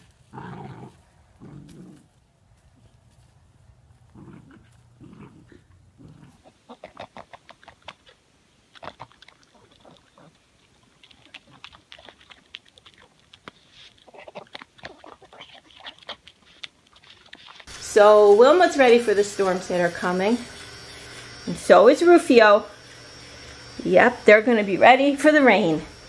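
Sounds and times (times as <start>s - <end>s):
dog chewing and lip-smacking: 6.8s - 17.7s.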